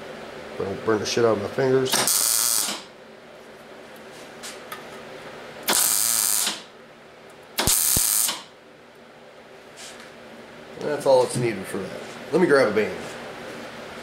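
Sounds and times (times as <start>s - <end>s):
welder arc bursts: 1.9s - 2.9s, 5.6s - 6.7s, 7.6s - 8.5s.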